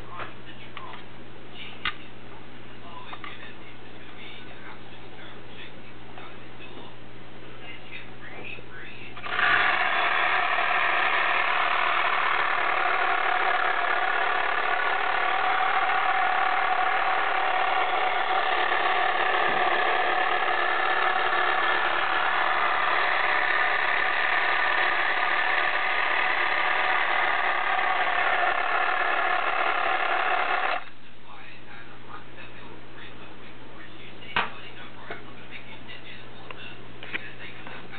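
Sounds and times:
small electric motor whirring: 9.2s - 30.9s.

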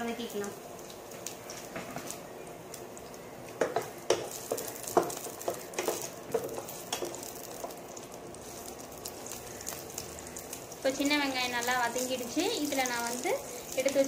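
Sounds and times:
shallots sizzling in hot oil: 0.0s - 14.0s
spatula knocking and scraping pan: 3.6s - 7.8s.

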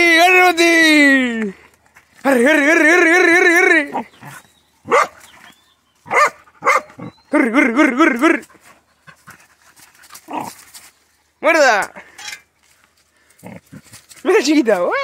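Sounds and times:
dogs barking and yapping: 3.9s - 11.0s.

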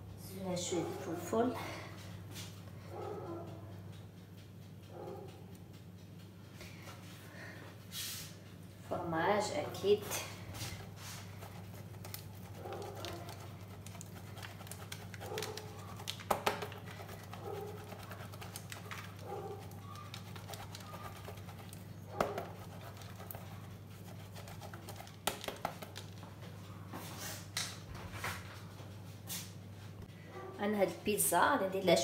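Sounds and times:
cheese grating rasp: 10.5s - 25.8s.

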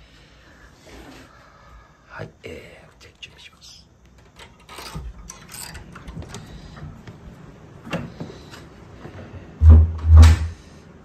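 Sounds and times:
heavy low thumps: 9.6s - 10.6s.

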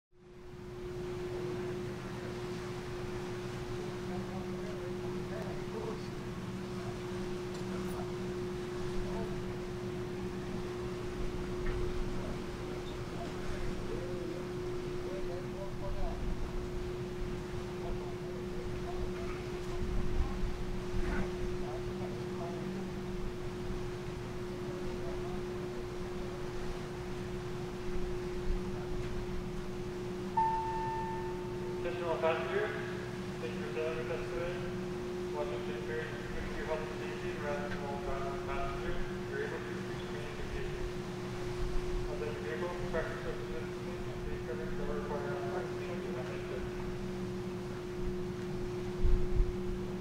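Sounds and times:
wind: 0.1s - 50.0s
churning wake water: 0.2s - 50.0s
ship machinery hum: 0.2s - 50.0s
constant tone: 0.3s - 50.0s.

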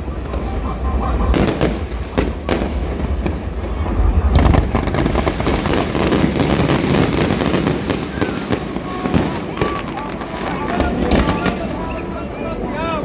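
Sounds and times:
low rumble: 0.0s - 6.4s
fireworks crackling and banging: 0.0s - 13.0s.

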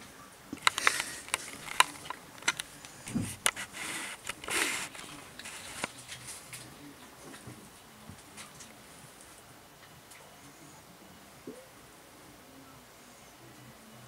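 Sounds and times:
animals scuffling: 0.6s - 9.5s.

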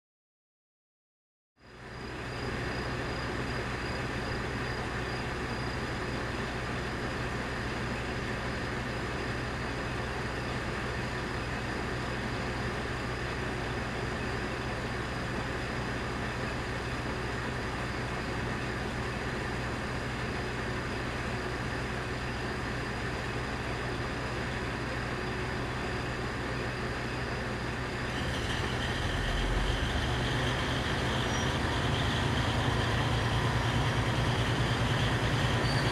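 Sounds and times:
diesel railcar engine: 1.6s - 35.9s
high-pitched whine: 24.8s - 35.9s.

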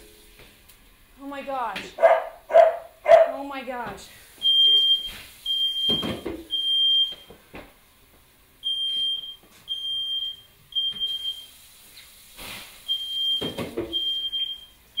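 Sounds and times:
smoke alarm beeping: 4.4s - 7.4s, 8.6s - 11.6s, 12.9s - 15.0s.

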